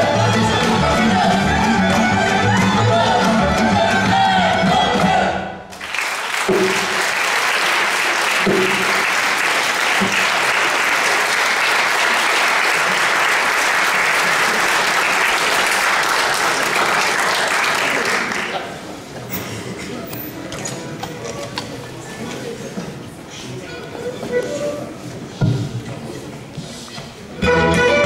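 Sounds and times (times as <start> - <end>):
folk tune with accordion: 0.0 - 5.0, 27.4 - 28.0
audience applause: 5.7 - 19.0.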